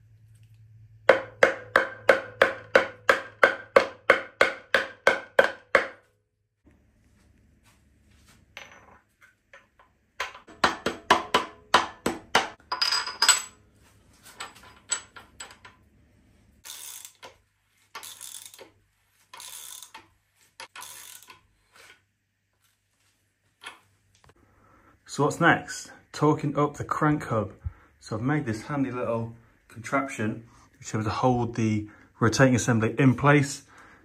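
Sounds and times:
metallic clinks and knocks: 8.5s - 10.9s, 12.6s - 13.6s, 14.2s - 15.8s
ratchet wrench clicking: 16.6s - 18.7s, 19.3s - 21.4s.

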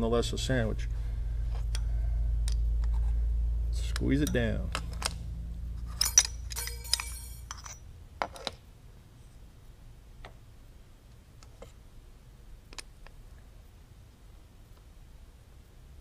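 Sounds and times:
metal parts clinking: 5.8s - 8.6s
metallic jingle: 5.9s - 7.9s.

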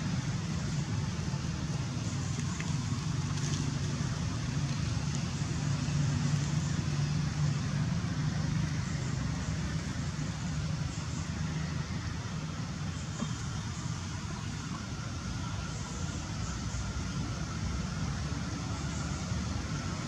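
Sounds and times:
traffic rumble: 0.0s - 20.0s.

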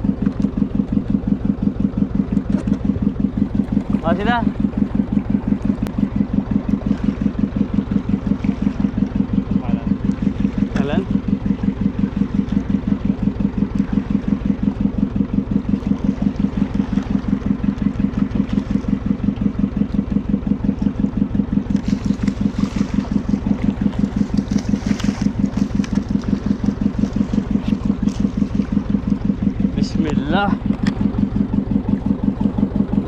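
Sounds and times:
boat engine thumping: 0.0s - 33.0s.

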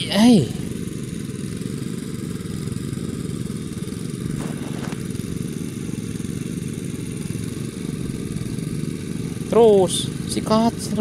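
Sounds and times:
small engine running: 0.0s - 11.0s.

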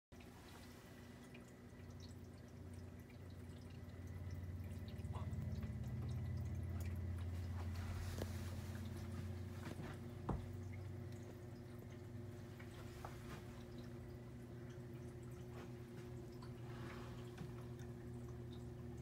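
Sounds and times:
filter motor hum: 0.1s - 19.0s
water trickling and dripping: 0.1s - 19.0s.

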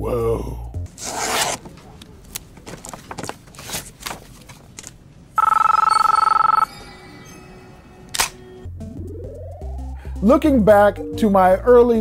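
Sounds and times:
paper rustling: 1.0s - 5.0s
mobile phone ringing: 5.4s - 7.8s.

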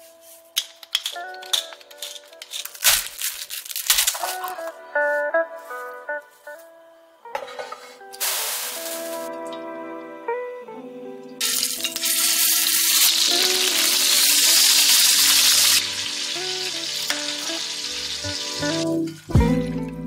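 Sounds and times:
chicken sizzling in hot oil: 8.2s - 9.2s, 11.4s - 19.4s.

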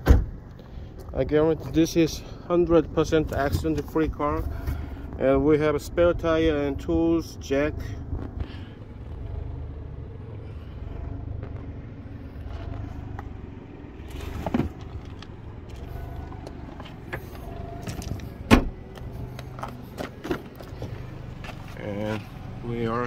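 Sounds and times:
loud thump: 0.0s - 0.4s, 18.4s - 18.8s
steady low hum: 4.1s - 22.7s.

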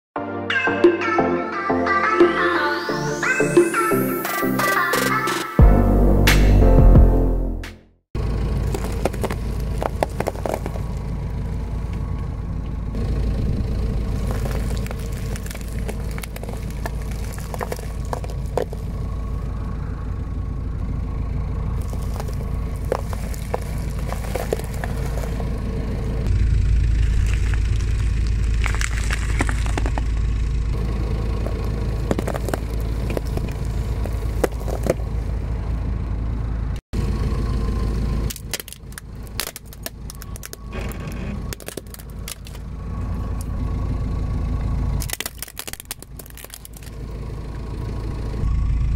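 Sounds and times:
car engine rumbling: 4.1s - 48.9s
tyre crushing wrapped objects: 8.6s - 11.0s, 14.1s - 18.9s, 21.8s - 25.5s, 27.0s - 30.0s, 38.3s - 40.8s, 41.5s - 42.6s, 45.0s - 47.0s
tyre crushing water beads: 8.6s - 11.1s, 14.1s - 18.9s, 21.8s - 25.5s, 27.0s - 30.1s, 31.4s - 35.0s, 38.3s - 42.6s, 45.0s - 47.0s.

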